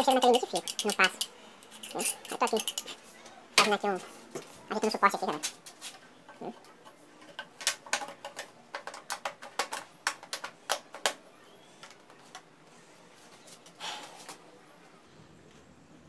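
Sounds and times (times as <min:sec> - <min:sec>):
plastic pipe fittings clicking: 0:07.2 - 0:11.2.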